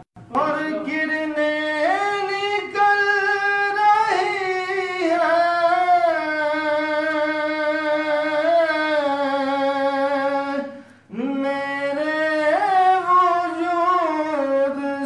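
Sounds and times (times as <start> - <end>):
man singing into a microphone: 0.2 - 15.0.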